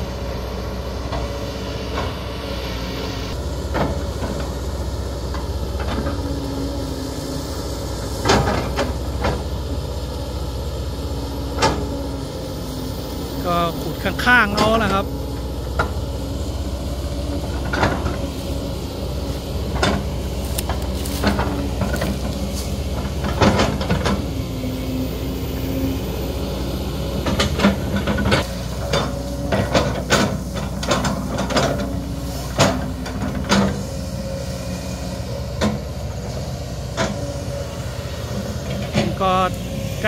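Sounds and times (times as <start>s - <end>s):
excavator engine running: 0.0s - 40.0s.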